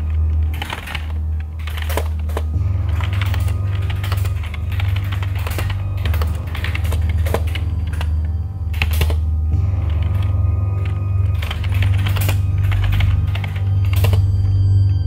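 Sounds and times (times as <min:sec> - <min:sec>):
keyboard typing clicks: 0:00.0 - 0:14.5
low music drone: 0:00.0 - 0:15.0.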